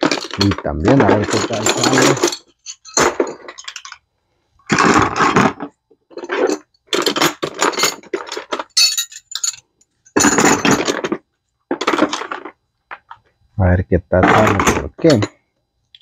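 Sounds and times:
metal tools clinking: 0.0s - 4.0s, 6.1s - 11.2s.

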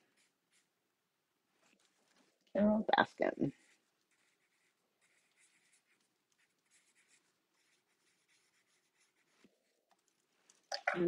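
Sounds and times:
pen scratching on paper: 0.0s - 0.7s, 3.4s - 9.9s.

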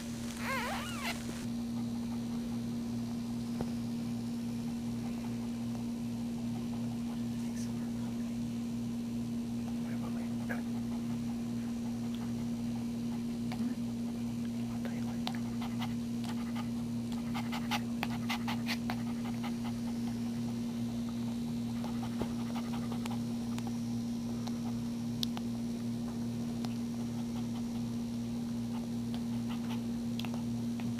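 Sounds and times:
steady low hum: 0.0s - 30.9s
dog panting: 1.7s - 2.9s, 4.6s - 7.7s, 9.6s - 24.9s, 26.5s - 30.9s.

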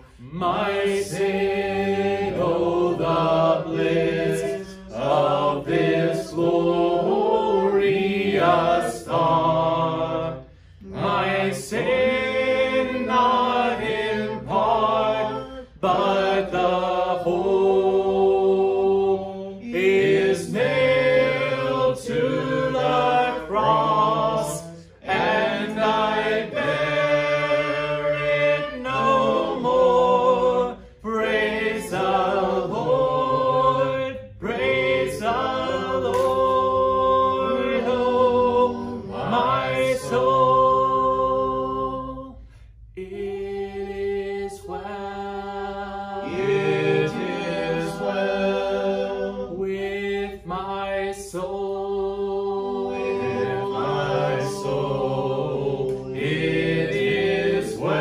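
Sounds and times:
voices singing a hymn a cappella: 0.0s - 58.0s.

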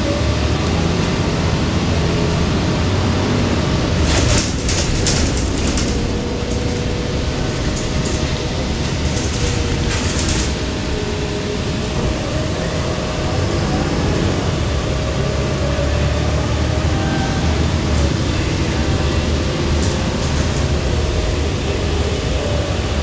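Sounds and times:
bus engine and road rumble: 0.0s - 23.0s
rattling clatter: 4.0s - 12.3s, 18.0s - 22.4s.

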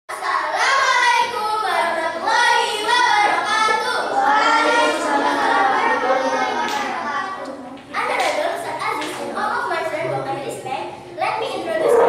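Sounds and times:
children singing: 0.6s - 7.8s, 11.6s - 12.0s.

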